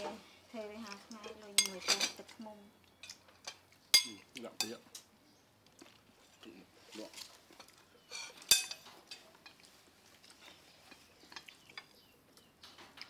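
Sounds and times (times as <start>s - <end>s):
metal spoon scraping ceramic dishes: 1.3s - 2.2s, 8.0s - 9.6s.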